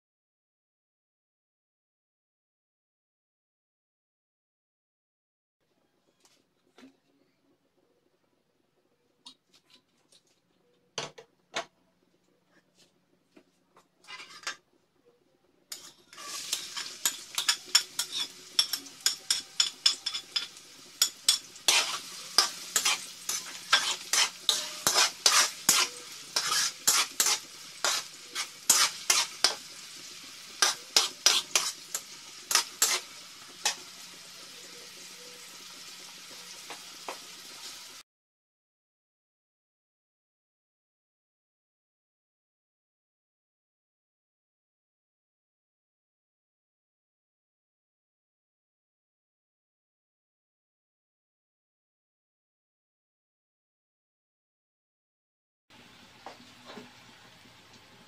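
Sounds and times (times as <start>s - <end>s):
metal spatula scraping wok: 14.0s - 14.6s, 15.7s - 34.8s
onion sizzling in oil: 14.0s - 14.6s, 15.7s - 38.0s.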